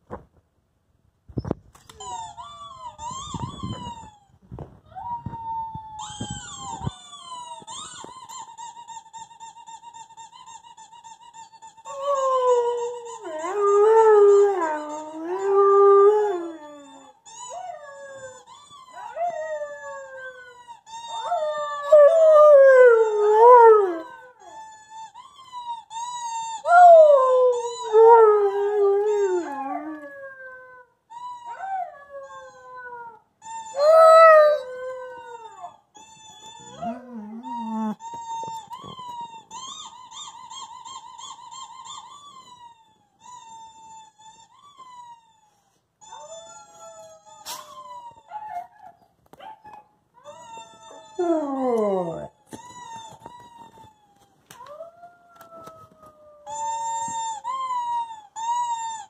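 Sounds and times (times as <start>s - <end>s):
dog howling: 50.2s - 52.3s.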